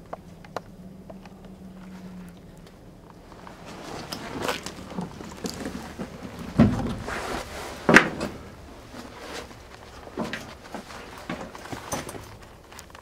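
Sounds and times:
rustling: 0.0s - 13.0s
thumps in metal interior: 6.4s - 7.2s.

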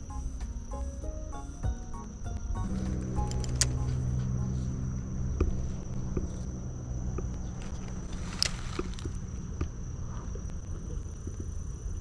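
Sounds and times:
low background music: 0.0s - 8.2s
steady high whine: 0.0s - 12.0s.

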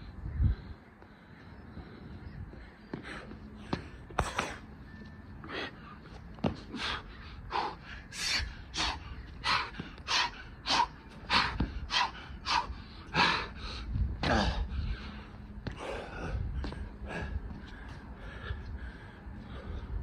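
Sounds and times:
man panting hard: 5.4s - 20.0s.

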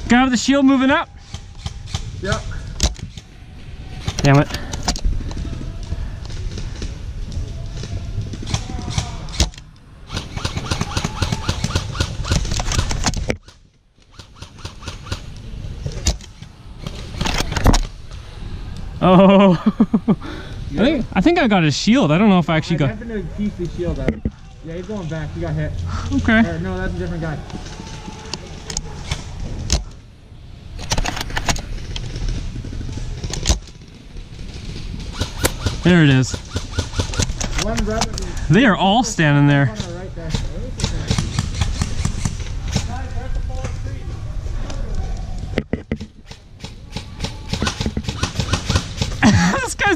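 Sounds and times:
sharp cracks: 1.2s - 3.3s, 4.0s - 18.9s, 30.7s - 38.3s, 38.9s - 43.8s, 44.7s - 49.9s
electric airsoft rifle firing: 10.1s - 15.3s, 35.1s - 37.5s
rifle handling rumble: 10.9s - 14.3s, 30.7s - 35.9s.

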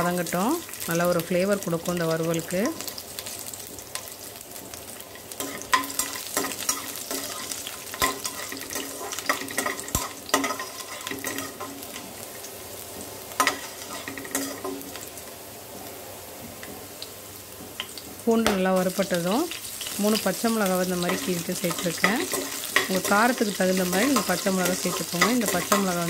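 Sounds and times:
spices sizzling in hot oil: 0.0s - 26.0s
spatula scraping and knocking pan: 5.4s - 12.1s, 13.4s - 15.0s, 20.6s - 26.0s.

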